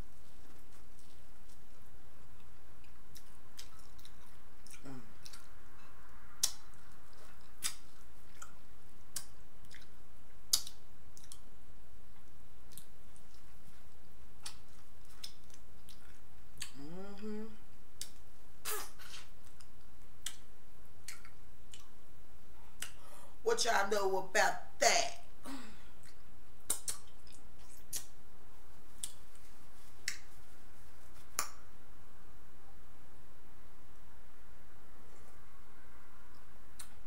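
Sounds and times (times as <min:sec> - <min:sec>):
wet chewing mouth clicks: 0:06.4 - 0:09.9, 0:26.0 - 0:28.1
person humming: 0:16.6 - 0:17.7.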